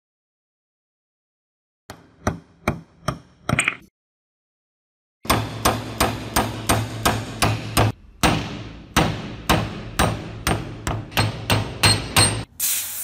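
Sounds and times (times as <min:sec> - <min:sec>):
hammer striking metal punch: 0:05.2 - 0:12.5.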